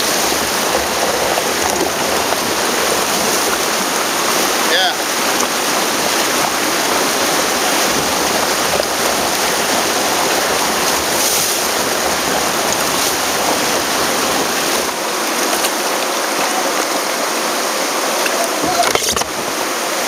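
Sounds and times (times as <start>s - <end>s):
whitewater rushing: 0.0s - 20.0s.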